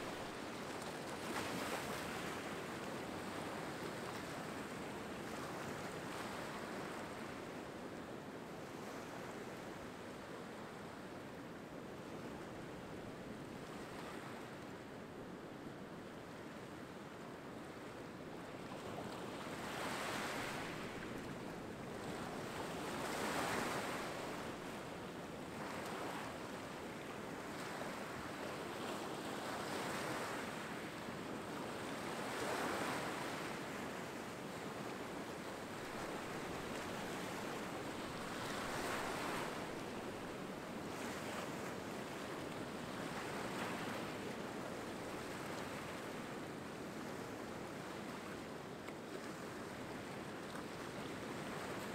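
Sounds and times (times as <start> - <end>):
small waves breaking on rocks: 35.8 - 40.3.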